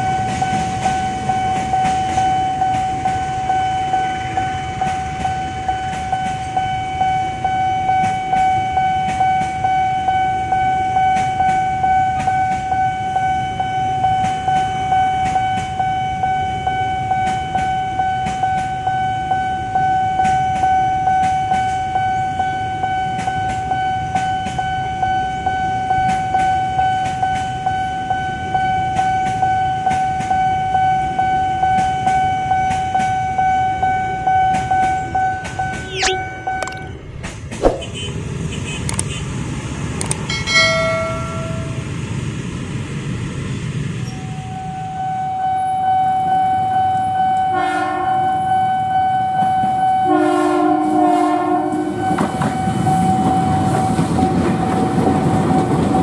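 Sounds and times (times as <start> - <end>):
train rumble: 0.0 - 15.9, 28.8 - 45.8, 49.2 - 56.0
level-crossing bell ringing: 40.2 - 42.0
train wheel clacks: 52.0 - 56.0.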